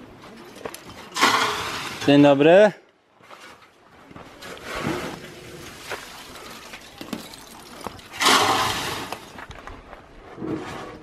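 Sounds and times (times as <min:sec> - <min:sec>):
charcoal crunching: 0:05.0 - 0:09.4.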